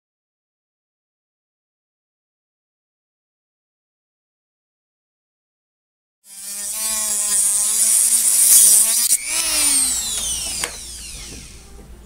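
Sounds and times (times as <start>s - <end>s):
rotary tool grinding metal: 6.3s - 11.7s
motor whine spinning down: 6.8s - 11.8s.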